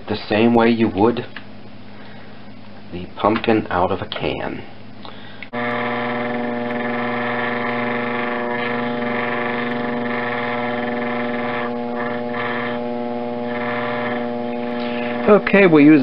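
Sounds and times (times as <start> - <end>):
potter's wheel motor humming: 5.4 - 16.0.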